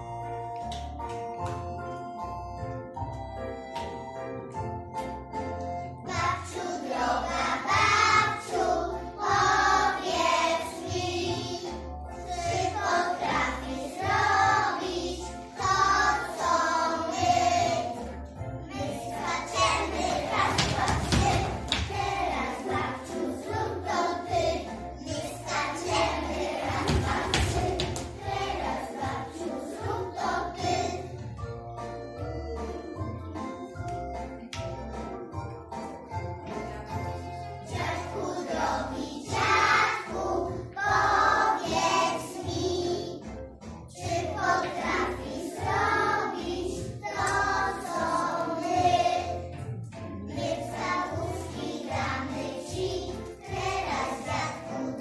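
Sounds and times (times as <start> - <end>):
instrumental accompaniment with bass: 0.0 - 54.9
children singing together: 6.1 - 18.1, 18.7 - 31.2, 37.6 - 43.3, 43.9 - 49.5, 50.2 - 55.0.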